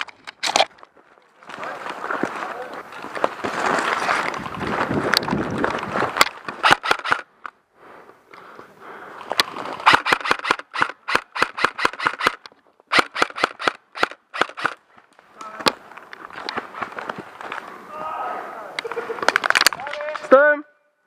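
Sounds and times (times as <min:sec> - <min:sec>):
airsoft rifle shots: 0:06.6 - 0:07.3, 0:09.8 - 0:14.8.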